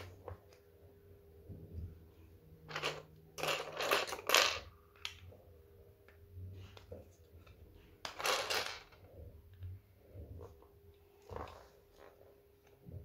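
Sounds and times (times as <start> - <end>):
plastic toy pieces rattling: 2.7 - 5.2, 8.1 - 9.0.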